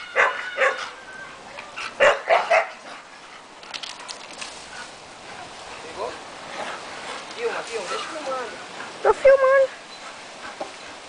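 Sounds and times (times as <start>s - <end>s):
dog barking and yelping: 0.0s - 2.9s, 9.0s - 9.7s.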